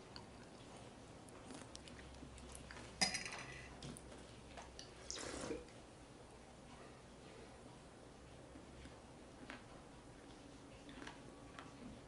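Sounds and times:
person gulping drink: 4.8s - 5.7s.

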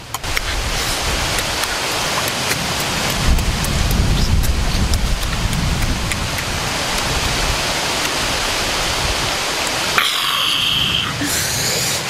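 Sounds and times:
stream water rushing: 0.0s - 12.0s.

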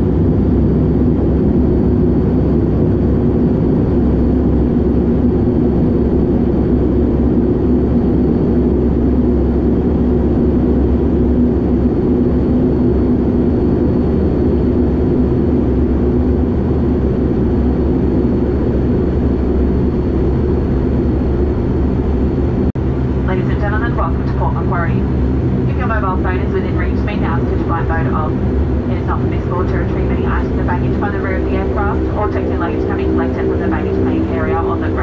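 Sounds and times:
turboprop engine drone: 0.0s - 35.0s
faint high whine: 22.8s - 35.0s.

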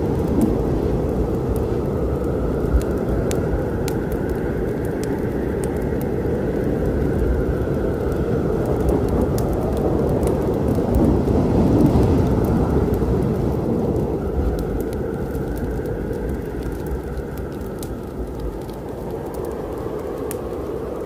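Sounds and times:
rain: 0.0s - 21.0s
thunder rumbling: 0.0s - 21.0s
wood fire crackling: 0.0s - 21.0s.

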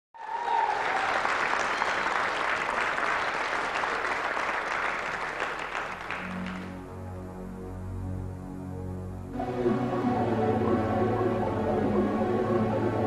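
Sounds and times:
audience applauding: 0.2s - 6.9s
low steady keyboard notes: 6.0s - 13.0s.

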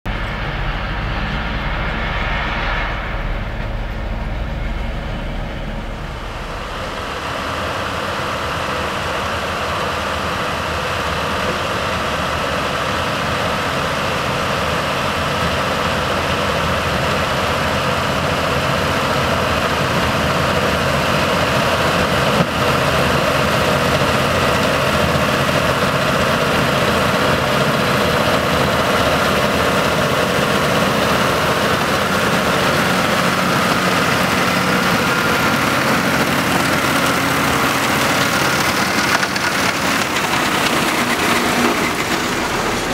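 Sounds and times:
tractor engine: 0.0s - 42.9s
spinning flails mechanical din: 22.9s - 42.9s.

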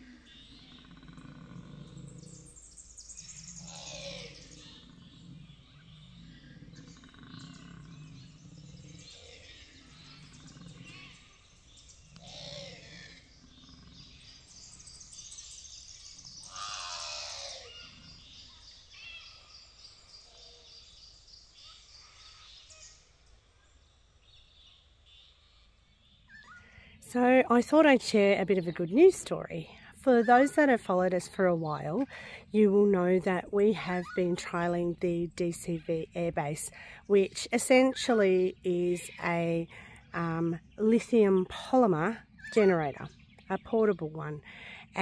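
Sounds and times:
koala bellowing: 0.0s - 14.5s, 16.4s - 19.5s
high bird trill: 0.0s - 23.0s
birds calling: 0.0s - 45.0s.

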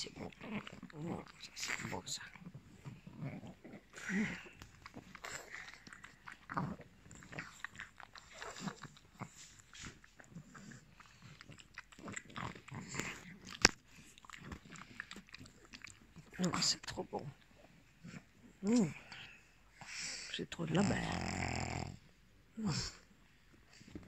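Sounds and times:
dog snapping teeth: 13.6s - 13.8s.

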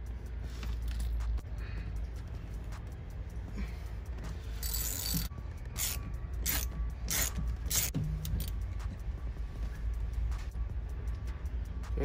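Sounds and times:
hand ratchet clicking: 4.6s - 8.6s.

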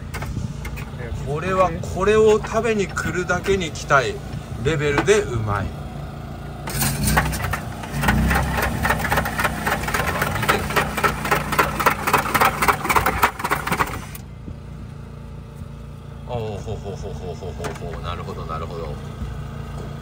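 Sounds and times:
low machine hum: 0.0s - 20.0s
ice shaving machine scraping: 6.7s - 14.2s.

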